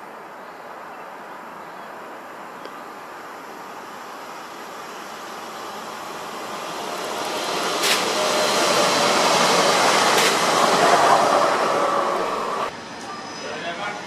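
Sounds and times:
electric train passing: 0:03.6 - 0:14.0
wheels clicking over rail joints: 0:06.5 - 0:11.1.

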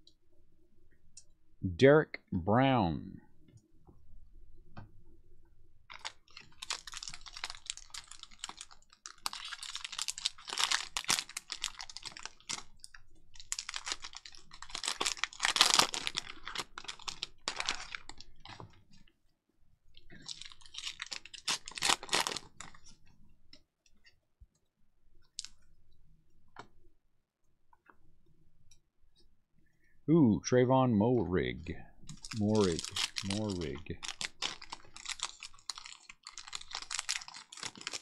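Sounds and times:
plastic wrapper crinkling and tearing: 0:05.9 - 0:19.1, 0:20.0 - 0:23.1, 0:25.3 - 0:25.6, 0:32.0 - 0:38.0.

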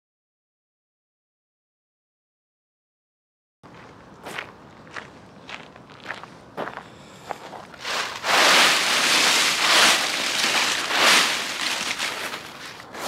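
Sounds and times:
footsteps on gravel: 0:03.7 - 0:13.0
dry leaves rustling and crackling: 0:07.8 - 0:13.0.

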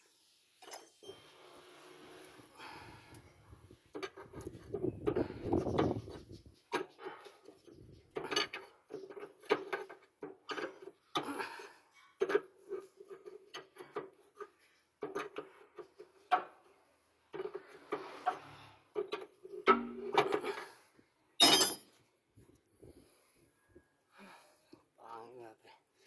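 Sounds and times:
clinks and knocks: 0:21.4 - 0:22.0.

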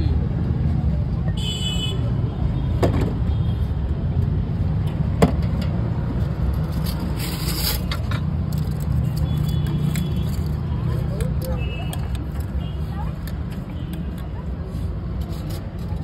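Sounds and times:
street traffic rumble: 0:00.0 - 0:16.0
brief scrape: 0:06.8 - 0:08.2.

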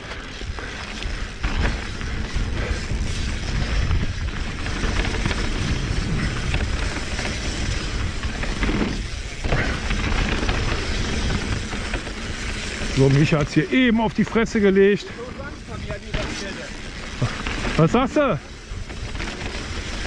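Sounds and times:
low rumble: 0:00.0 - 0:13.6
bike rattling over bumps: 0:00.0 - 0:20.0
tyres crunching on gravel: 0:00.0 - 0:20.0.

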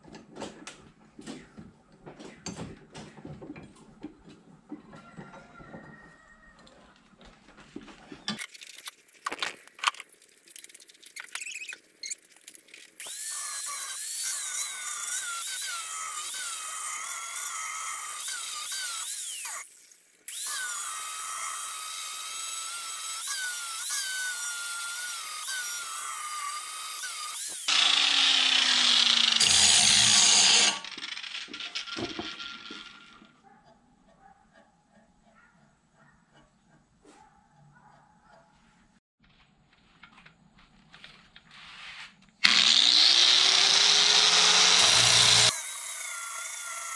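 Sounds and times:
angle grinder grinding steel: 0:13.0 - 0:33.3, 0:42.4 - 0:46.9.

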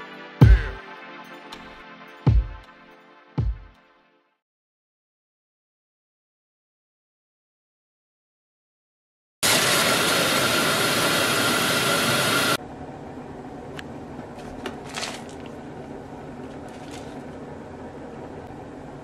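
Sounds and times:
plastic wrapper crinkling: 0:14.4 - 0:15.6, 0:16.5 - 0:17.3.

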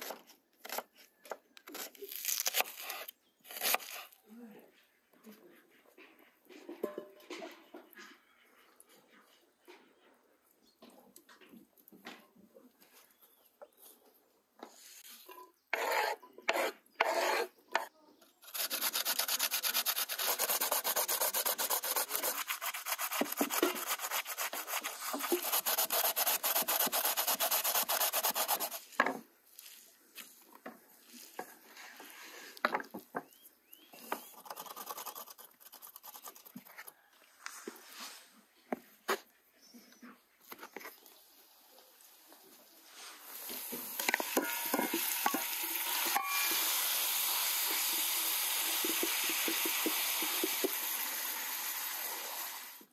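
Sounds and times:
scraping on a rough surface: 0:14.7 - 0:30.3, 0:42.9 - 0:46.6.

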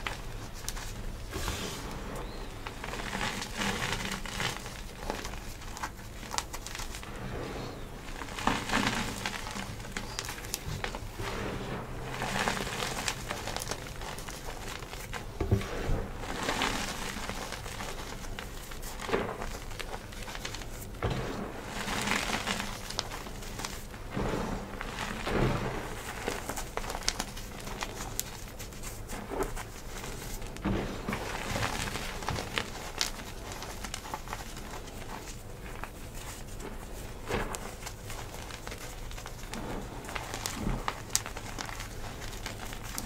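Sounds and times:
hands crunching chalk powder: 0:00.0 - 0:15.5, 0:16.2 - 0:43.0
powder pattering through fingers: 0:07.8 - 0:11.2, 0:24.8 - 0:43.0.

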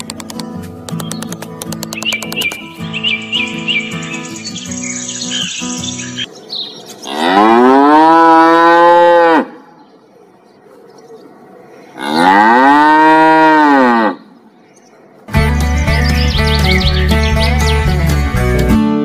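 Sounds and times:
music: 0:00.2 - 0:06.3, 0:15.3 - 0:19.0
cow mooing: 0:07.0 - 0:09.6, 0:12.0 - 0:14.3.

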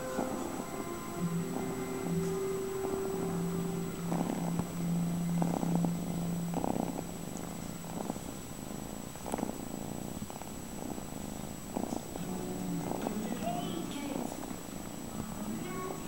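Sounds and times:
kitten purring: 0:00.0 - 0:16.0.

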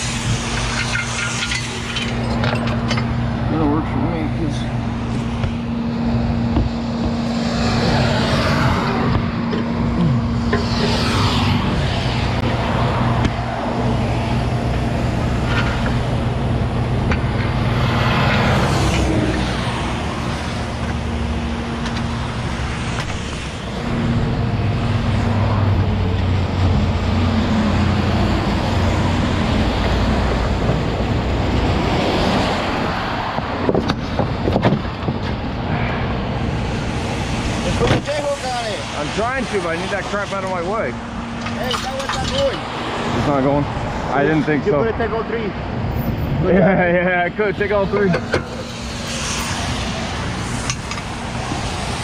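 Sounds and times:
freeway traffic rushing past: 0:00.0 - 0:52.0
sharp metal clanks: 0:00.4 - 0:03.1.

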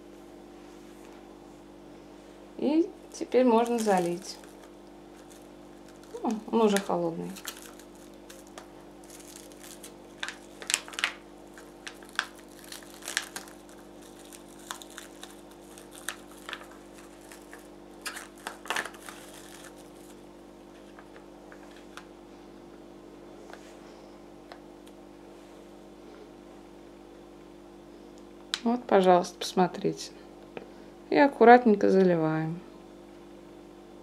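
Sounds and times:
steady low hum: 0:00.0 - 0:34.0
cling film crinkling: 0:03.5 - 0:22.1.

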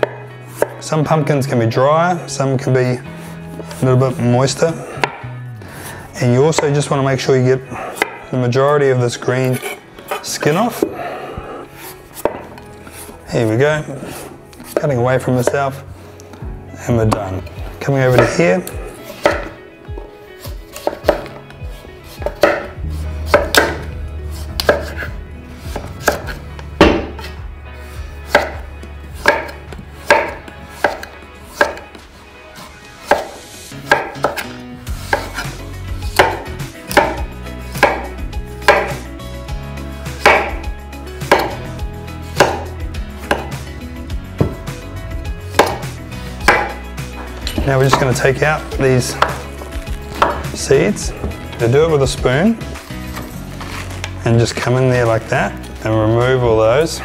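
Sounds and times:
knife slicing pumpkin skin: 0:00.0 - 0:00.9, 0:17.1 - 0:19.6, 0:20.4 - 0:39.0, 0:40.1 - 0:40.6, 0:41.2 - 0:43.6, 0:45.5 - 0:46.8, 0:47.5 - 0:52.0
knife knocking on wooden board: 0:41.3 - 0:41.6, 0:43.3 - 0:43.6, 0:44.4 - 0:44.7, 0:45.6 - 0:45.8.

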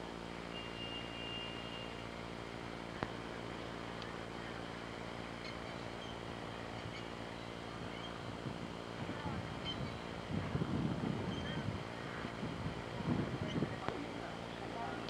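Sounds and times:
camcorder running hum and hiss: 0:00.0 - 0:15.0
brief high whistle: 0:00.5 - 0:02.0.

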